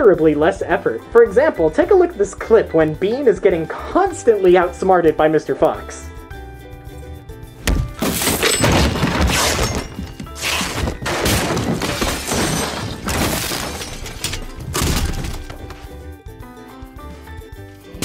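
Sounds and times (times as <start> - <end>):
film music: 0.0 - 18.0
objects crashing and shattering: 7.8 - 15.8.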